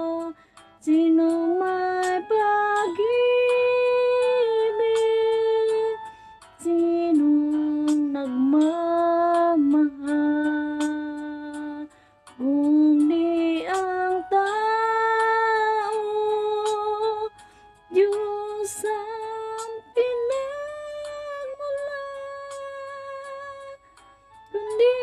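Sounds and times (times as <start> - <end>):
woman singing unaccompanied: 0.0 - 6.0, 6.6 - 17.3, 17.9 - 23.8, 24.5 - 25.0.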